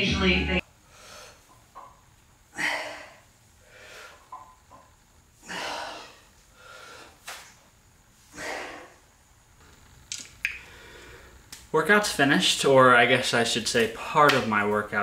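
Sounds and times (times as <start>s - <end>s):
man breathing hard: 0.8s - 1.5s, 2.5s - 4.3s, 5.4s - 7.2s, 8.2s - 9.1s, 10.6s - 11.4s.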